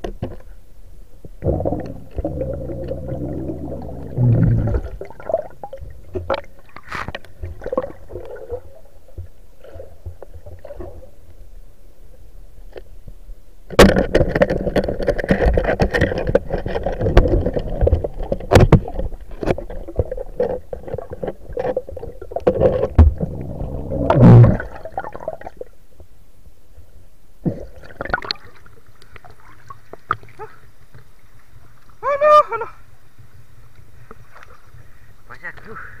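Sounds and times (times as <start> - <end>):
underwater rushing and splashing: 1.2 - 11.4, 13.8 - 25.7.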